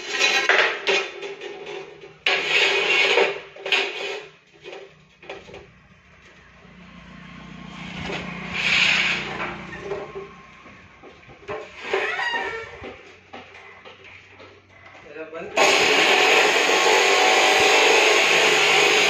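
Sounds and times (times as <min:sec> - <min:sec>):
steel bars scraping on metal: 0:00.0 - 0:06.5, 0:07.8 - 0:10.4, 0:11.5 - 0:13.5.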